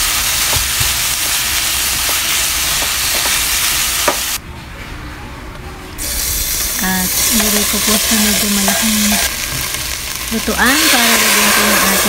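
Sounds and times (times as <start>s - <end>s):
meat sizzling in a frying pan: 6.1s - 12.0s.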